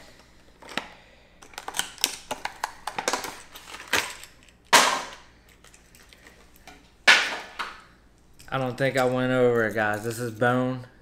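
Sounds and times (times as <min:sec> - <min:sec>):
plastic packaging clicking and crackling: 0:00.6 - 0:07.7.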